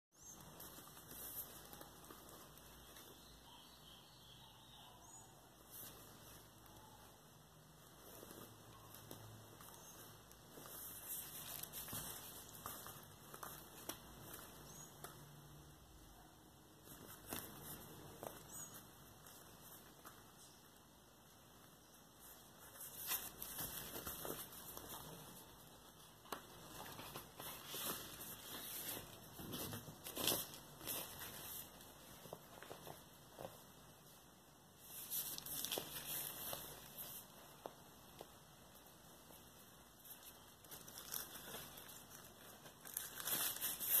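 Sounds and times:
cardboard sleeve rustle: 0.2 - 3.2, 7.8 - 15.2, 22.0 - 34.2, 34.8 - 44.0.

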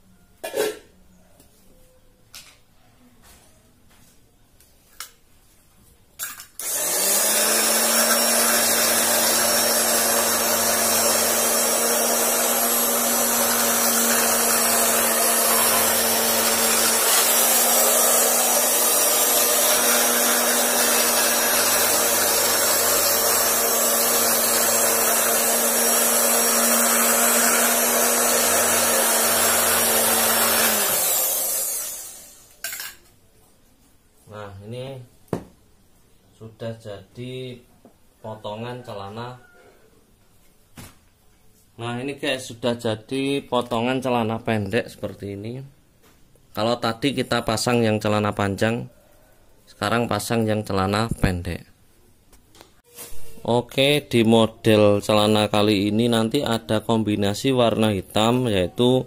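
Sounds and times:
fabric cutting machine motor hum: 6.6 - 32.4.

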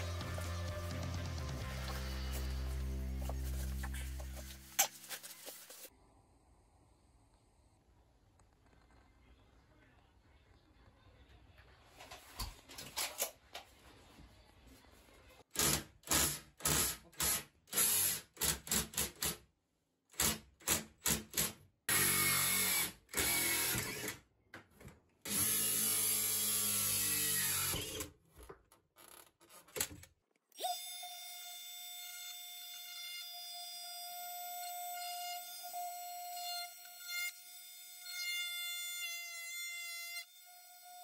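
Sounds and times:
background music: 0.0 - 4.6
cordless drill drilling: 21.9 - 24.2, 25.3 - 28.1.

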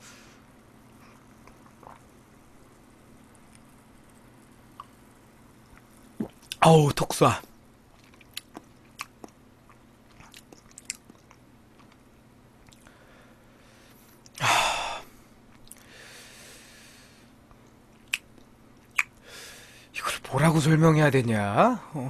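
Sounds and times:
lip smacks and clicks: 17.6 - 19.2
burst of breath: 19.2 - 19.9.

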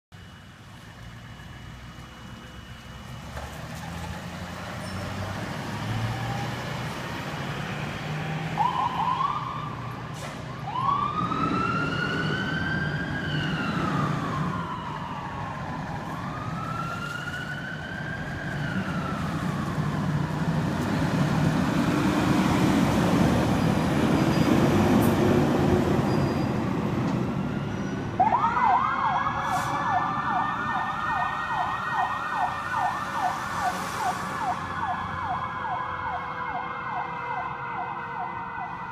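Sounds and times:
siren wailing: 8.4 - 9.9, 10.5 - 20.7, 27.2 - 38.9
siren chirp: 8.5 - 9.9, 10.6 - 20.5, 27.2 - 38.9
fast yelp siren: 8.6 - 9.9, 10.6 - 20.3, 27.4 - 38.9.

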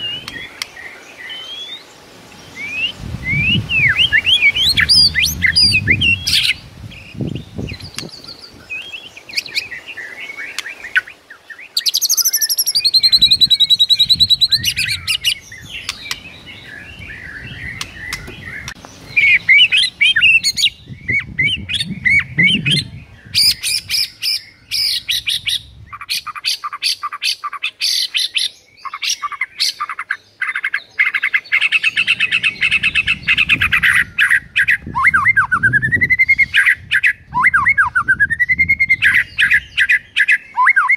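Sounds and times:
bird singing whistled phrases: 1.2 - 1.8, 2.6 - 25.6, 31.0 - 40.9.

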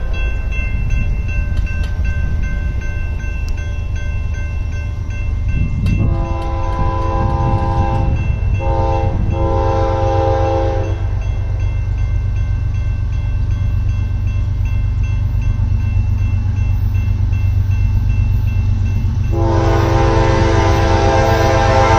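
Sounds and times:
faint crossing bell ringing: 0.0 - 20.1
low train rumble: 0.0 - 21.9
train air horn blasts: 6.0 - 11.1, 19.3 - 21.9.

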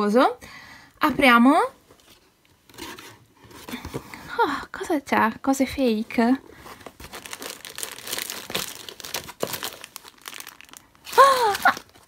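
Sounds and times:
cellophane wrappers crinkling: 6.1 - 12.0.

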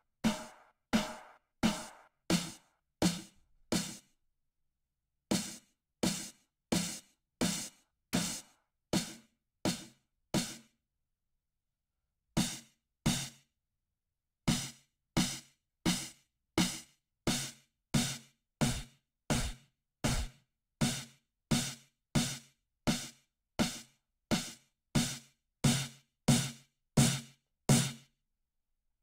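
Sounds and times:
synthesized snare drum hits: 0.0 - 2.6, 18.6 - 20.3.

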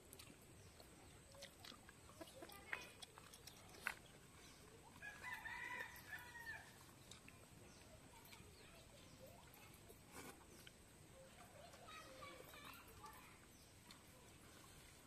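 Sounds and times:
rooster crowing faintly: 5.0 - 6.8.

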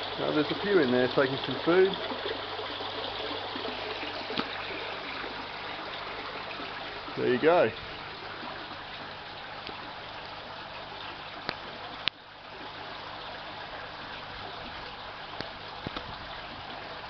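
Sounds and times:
water trickling and splashing: 0.0 - 17.0.

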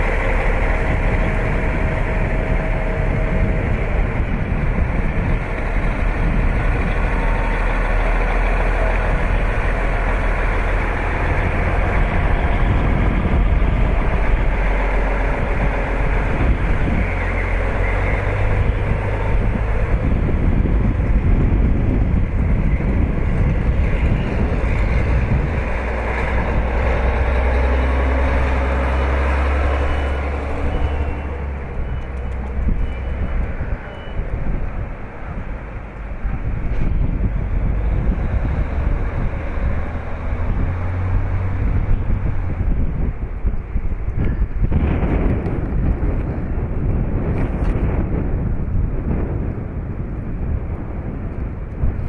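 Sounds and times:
heavy truck engines rumbling: 0.0 - 52.0
trucks splashing through water: 23.9 - 34.2
faint beeping: 29.7 - 34.3.

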